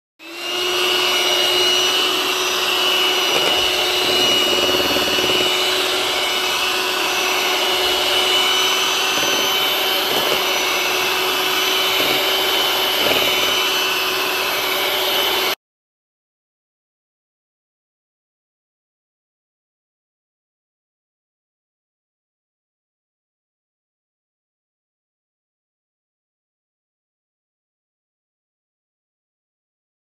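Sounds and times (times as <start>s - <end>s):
electric hand mixer whipping cream: 0.2s - 15.6s.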